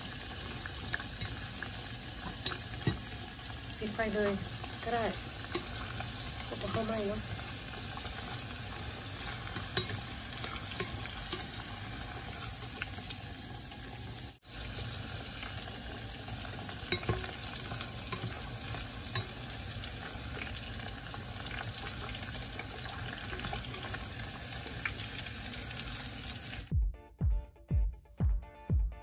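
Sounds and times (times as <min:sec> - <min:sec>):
meat sizzling in hot oil: 0:00.0 - 0:26.7
tongs clicking against pot: 0:02.2 - 0:03.1, 0:05.2 - 0:07.5, 0:08.2 - 0:11.7, 0:16.9 - 0:19.8.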